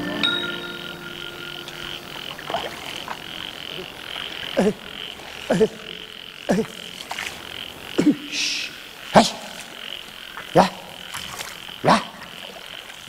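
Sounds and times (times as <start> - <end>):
music: 0.0 - 2.2
high-pitched insect drone: 0.0 - 11.8
croaking calls dropping in pitch: 0.0 - 13.0.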